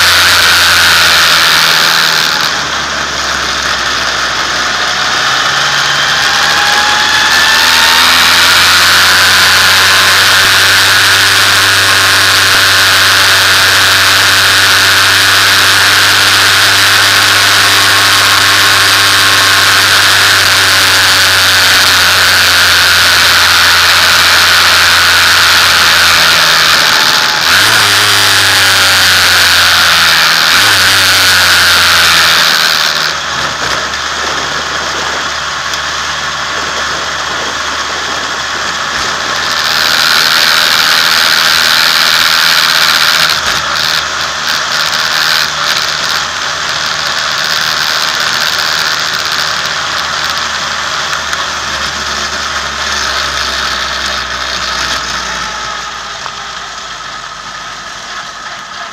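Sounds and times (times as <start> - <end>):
racing car engine: 0.0 - 58.9.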